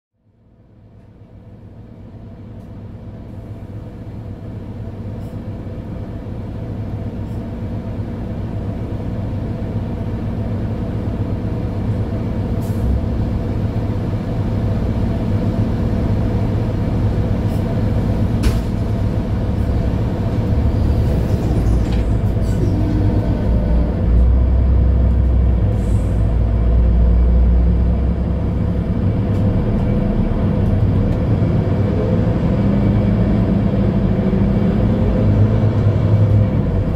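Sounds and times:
bus engine running: 0.2s - 36.9s
deep rumble: 7.8s - 36.9s.

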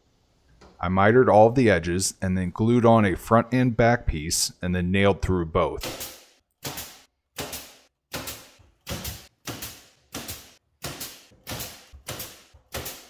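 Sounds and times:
pneumatic nailer firing: 5.8s - 13.0s.

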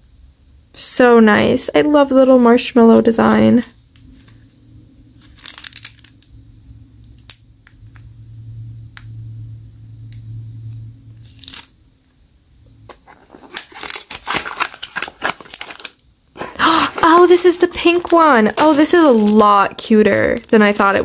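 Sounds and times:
plastic rustle: 3.3s - 6.2s, 13.0s - 21.0s
cardboard box crinkling and tearing: 13.0s - 21.0s.

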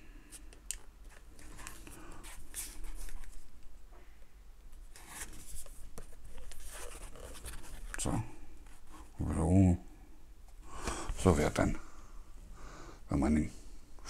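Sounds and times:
hands rubbing a microphone: 4.9s - 9.2s.

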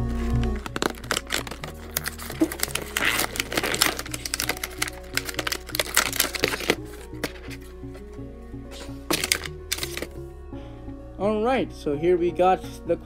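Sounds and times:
plastic packaging crinkling: 0.1s - 8.1s, 8.7s - 10.2s.

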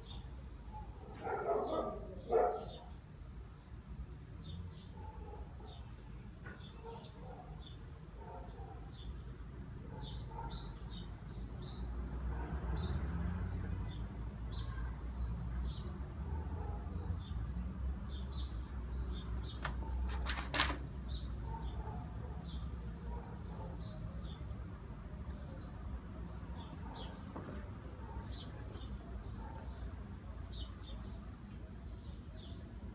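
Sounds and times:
small birds chirping: 0.0s - 11.9s.

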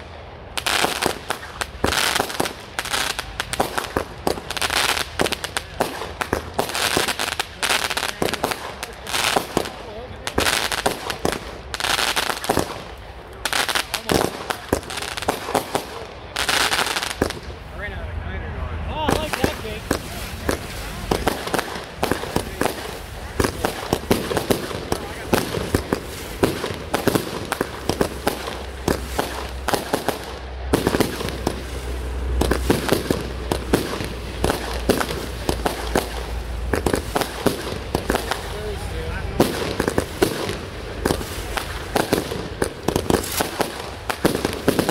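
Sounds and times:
rapid firework popping: 0.0s - 17.6s, 19.0s - 44.9s
fireworks booming: 0.0s - 17.7s, 18.9s - 44.9s
low steady rumble: 17.2s - 44.7s.

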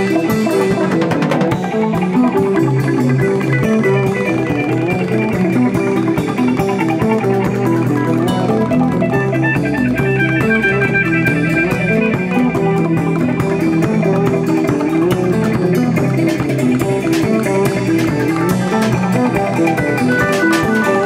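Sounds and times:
bass line: 0.0s - 21.0s
drums and percussion: 0.0s - 21.0s
plucked guitar notes: 0.0s - 21.0s.

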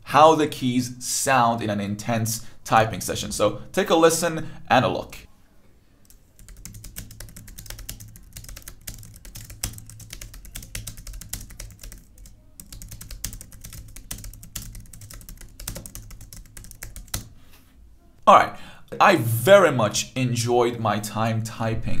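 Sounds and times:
keyboard typing clicks: 6.0s - 17.3s.

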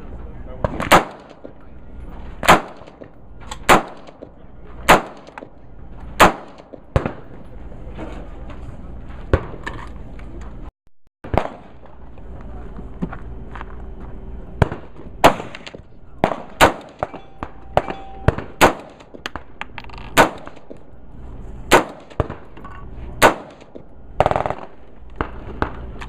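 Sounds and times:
rifle single shots: 0.6s - 1.5s, 2.4s - 4.2s, 4.9s - 5.5s, 6.2s - 7.3s, 14.6s - 19.5s, 20.1s - 20.8s, 21.7s - 22.6s, 23.2s - 25.8s.

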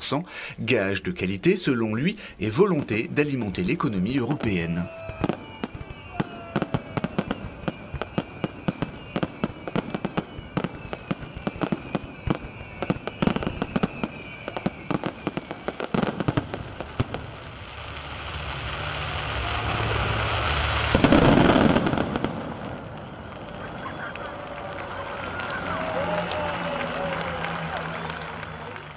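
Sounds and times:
fireworks bangs and crackles: 2.4s - 28.9s
rushing noise ending in burst: 17.7s - 23.4s.

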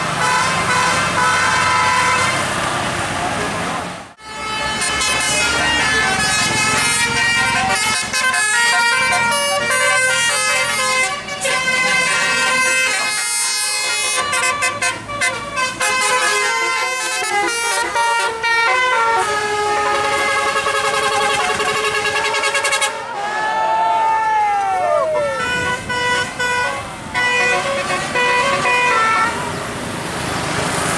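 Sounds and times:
bus air horns playing a tune: 0.1s - 2.6s, 4.2s - 23.5s, 25.2s - 29.6s.

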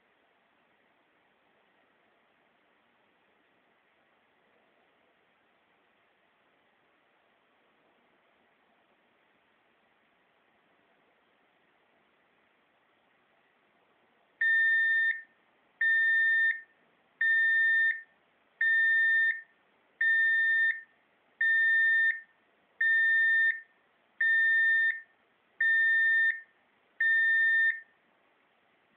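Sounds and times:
electronic alarm beeps: 14.4s - 27.9s.

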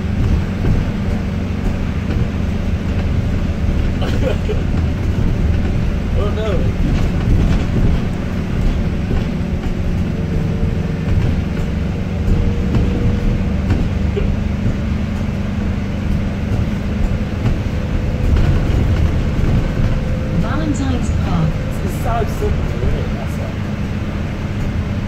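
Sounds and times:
bus diesel engine rumbling: 0.0s - 25.0s
faint drivetrain whine: 0.0s - 25.0s.

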